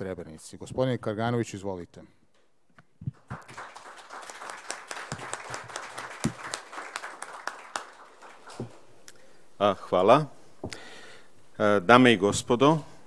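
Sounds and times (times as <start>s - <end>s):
audience applauding: 3.2s - 8.8s.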